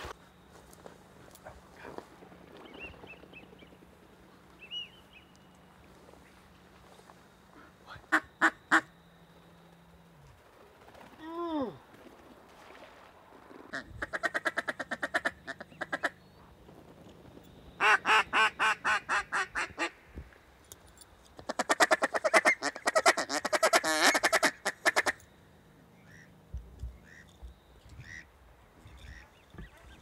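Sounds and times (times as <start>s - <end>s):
ducks quacking: 21.4s - 25.2s, 28.9s - 30.0s.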